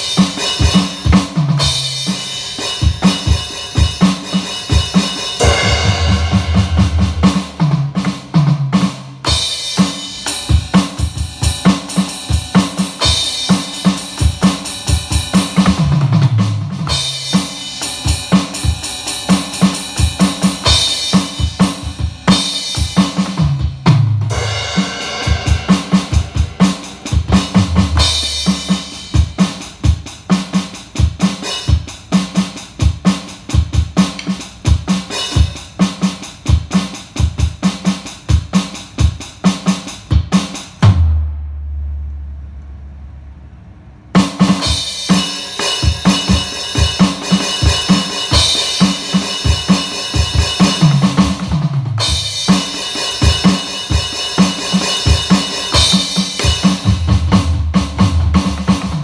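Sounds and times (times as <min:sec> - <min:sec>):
drum kit beat: 0:00.0 - 0:42.1, 0:44.1 - 0:59.0
bass line: 0:05.4 - 0:07.8, 0:24.2 - 0:28.7.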